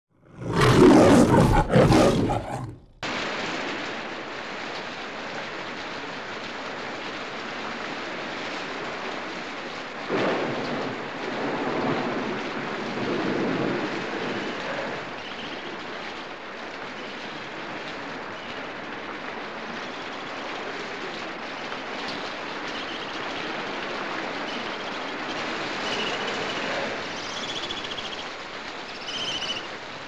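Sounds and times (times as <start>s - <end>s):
lion roaring: 0.3s - 3.0s
heavy rain: 0.3s - 30.0s.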